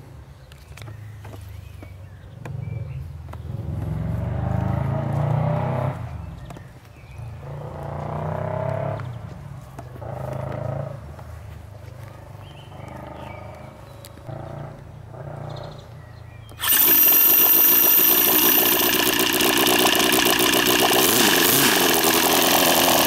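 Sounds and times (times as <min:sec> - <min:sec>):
model engine revving and idling: 0:16.6 - 0:23.0.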